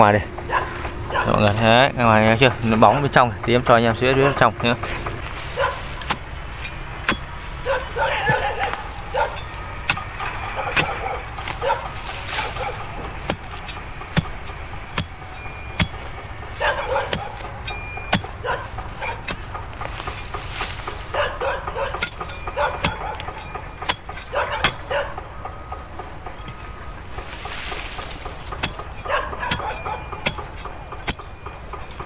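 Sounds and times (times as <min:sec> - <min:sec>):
dog barking: 0:00.5 - 0:01.6, 0:05.5 - 0:06.0, 0:07.6 - 0:09.5, 0:10.5 - 0:12.9, 0:16.6 - 0:17.5, 0:18.4 - 0:19.3, 0:21.1 - 0:23.6, 0:24.3 - 0:25.3, 0:29.0 - 0:30.2
spade chopping into hard soil: 0:04.8 - 0:21.2, 0:27.2 - 0:31.3.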